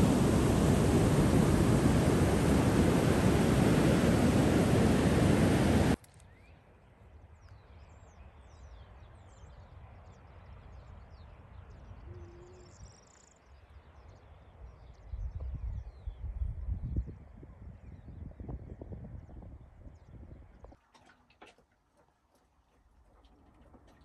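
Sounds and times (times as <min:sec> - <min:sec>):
loud rushing noise: 0:00.0 - 0:06.0
faint bird chirps: 0:07.4 - 0:16.4.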